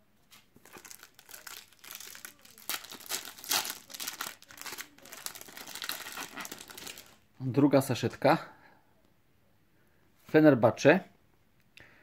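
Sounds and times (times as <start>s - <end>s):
foil packet crinkling as torn: 0.6s - 7.2s.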